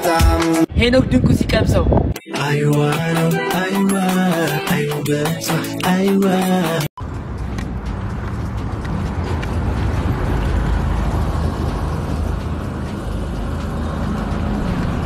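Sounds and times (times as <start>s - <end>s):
low street rumble: 7.0s - 15.0s.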